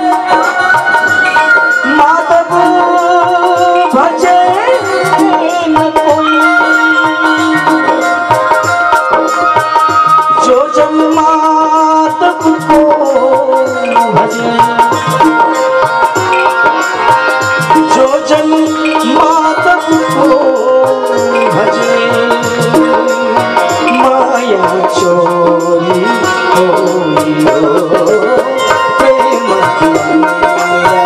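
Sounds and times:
harmonium chords: 0:00.0 - 0:31.0
tabla rhythm: 0:00.0 - 0:31.0
wavering melody line: 0:00.0 - 0:31.0.

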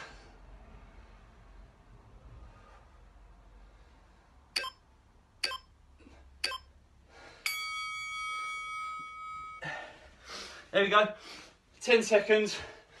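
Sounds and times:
long timer beep: 0:04.6 - 0:04.8, 0:05.4 - 0:05.7, 0:06.4 - 0:06.7
short timer beeps: 0:04.6 - 0:04.8, 0:05.4 - 0:05.7, 0:06.4 - 0:06.7.

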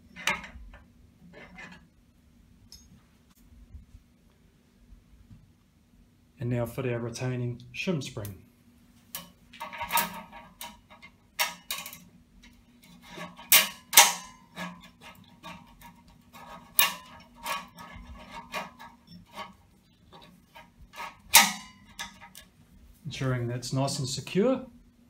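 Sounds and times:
metallic clicks and scrapes: 0:09.1 - 0:22.6.

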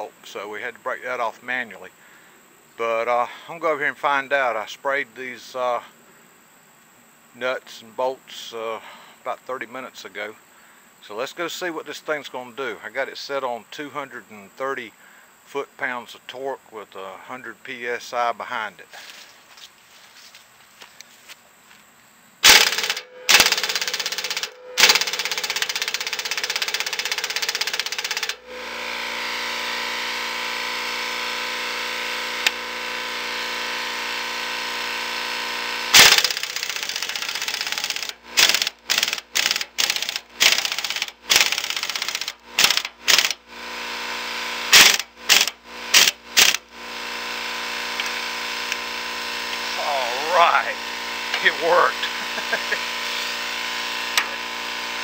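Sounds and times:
pneumatic impact wrench hammering: 0:22.4 - 0:49.8, 0:50.5 - 0:55.0.

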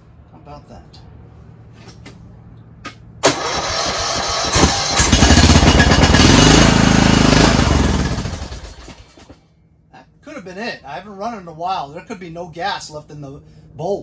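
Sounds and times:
electric starter cranking: 0:03.2 - 0:09.2
lawn tractor engine running: 0:03.2 - 0:09.4.

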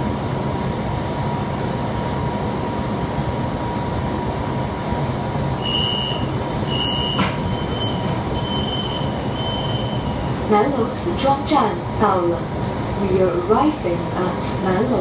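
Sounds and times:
train rumble: 0:00.0 - 0:15.0
high brake squeal: 0:05.6 - 0:10.4.

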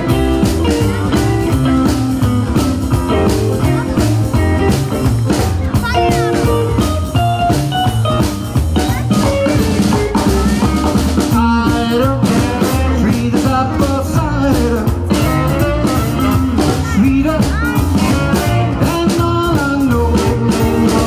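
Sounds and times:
live rock and roll band: 0:00.0 - 0:21.0
saxophone lead: 0:14.9 - 0:19.0.

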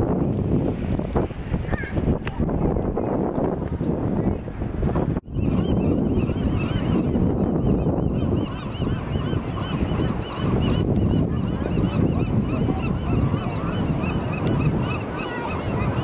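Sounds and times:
wind: 0:00.0 - 0:16.0
gulls calling: 0:05.3 - 0:16.0.

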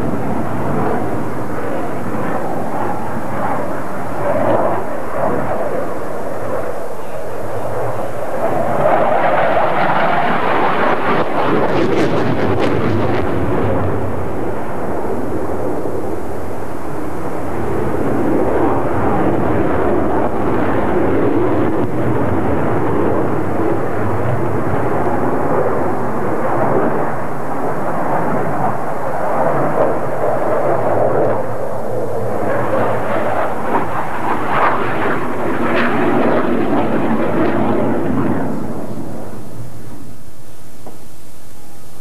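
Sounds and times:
jet fighter flying past: 0:00.0 - 0:42.0.

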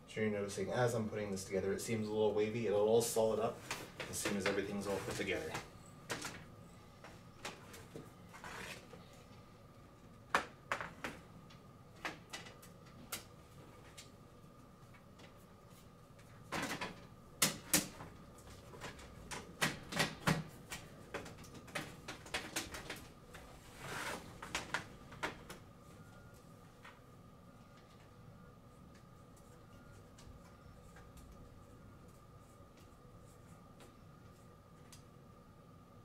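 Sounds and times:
panels scraping: 0:03.5 - 0:05.7.

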